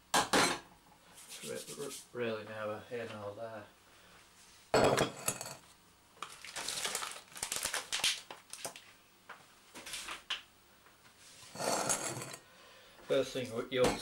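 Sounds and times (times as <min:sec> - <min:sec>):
glass bowl clinking on worktop: 0:04.8 - 0:05.6
plastic trays crinkling: 0:06.2 - 0:08.9.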